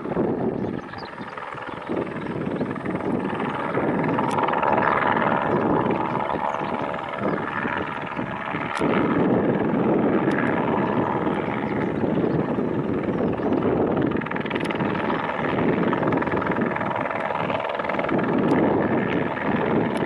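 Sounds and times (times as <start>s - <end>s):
helicopter flying low: 0.0s - 20.0s
turbine whine: 0.0s - 20.0s.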